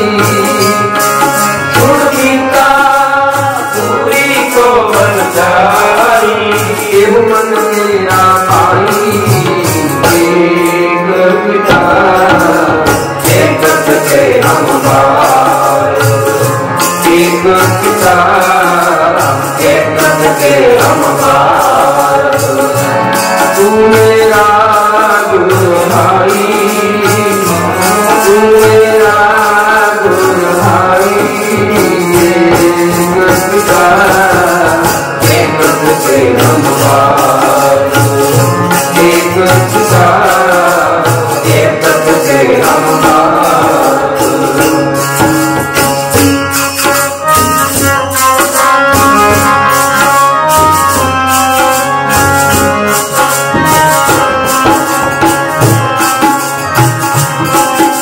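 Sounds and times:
men singing a hymn: 0.0 - 45.8
harmonium: 0.0 - 58.0
steady percussion beat: 0.0 - 58.0.

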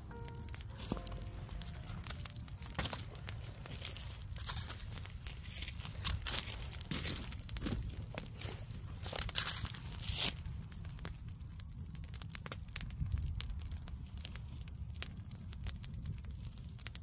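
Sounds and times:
rustling in dry leaves: 0.0 - 10.6
campfire crackling and popping: 0.0 - 17.0.

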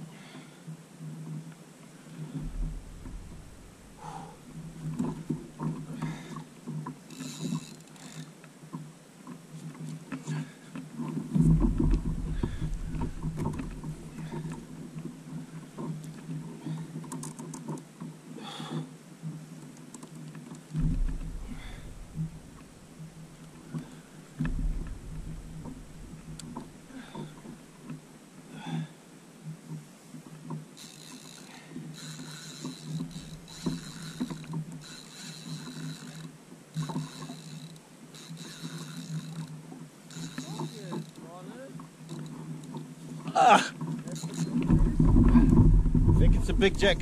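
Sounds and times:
steady low hum: 2.1 - 6.4, 11.3 - 16.7, 20.8 - 28.1, 44.4 - 47.0
fishing reel whirring: 2.2 - 6.4, 7.0 - 8.4, 30.8 - 41.2, 42.0 - 42.8, 43.8 - 45.7
low thump on kayak hull: 2.3 - 4.0, 20.8 - 27.6
knocks and clicks of fishing gear: 2.3 - 28.0, 29.7 - 41.2, 41.8 - 46.8.

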